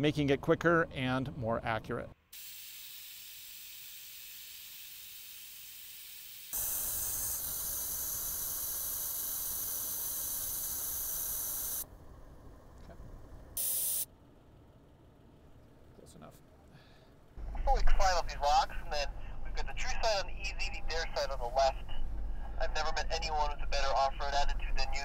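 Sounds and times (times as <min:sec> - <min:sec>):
air hissing out of tire valves: 0:02.4 - 0:11.9, 0:13.6 - 0:14.1.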